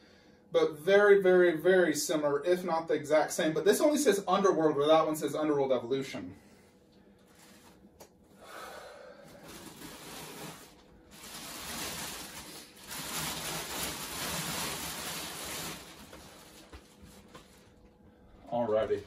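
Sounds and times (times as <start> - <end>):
plastic wrap rustling: 7.2 - 7.9, 9.3 - 18.0.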